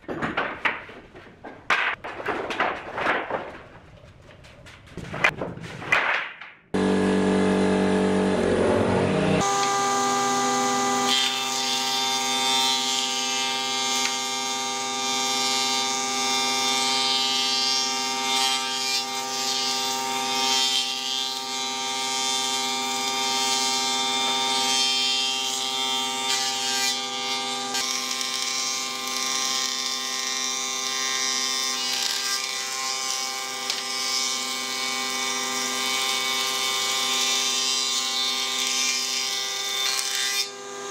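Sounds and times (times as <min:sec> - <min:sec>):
lower machine tone: 0:06.8 - 0:10.6
planer machine humming: 0:06.8 - 0:28.2.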